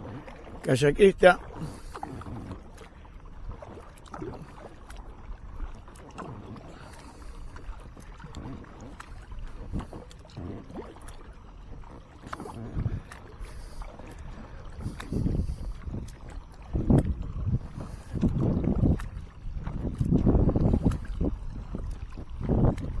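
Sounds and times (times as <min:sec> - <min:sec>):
paddle splashing: 0:00.0 - 0:23.0
water running along hull: 0:00.0 - 0:23.0
steady low rumble: 0:11.7 - 0:23.0.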